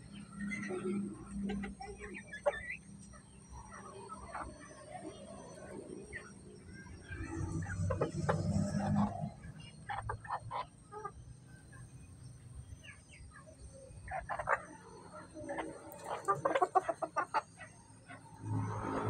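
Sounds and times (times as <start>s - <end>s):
chickens clucking softly: 0.1s - 12.1s, 12.8s - 18.4s
chickens pecking on hard ground: 15.4s - 17.4s.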